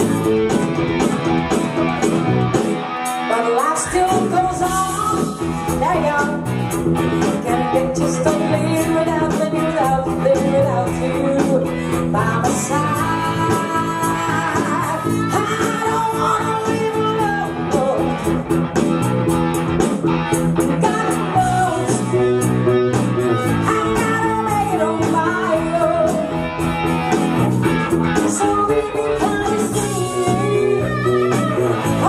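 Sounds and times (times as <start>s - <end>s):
electric guitar: 0.0s - 32.0s
live rock band playing: 0.0s - 32.0s
woman singing: 3.2s - 6.5s, 7.2s - 18.3s, 20.6s - 22.5s, 23.4s - 26.5s, 28.2s - 32.0s.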